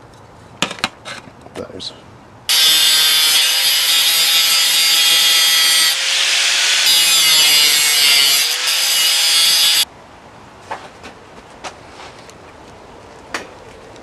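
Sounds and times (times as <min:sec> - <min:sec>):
angle grinder grinding metal: 0:02.5 - 0:09.8.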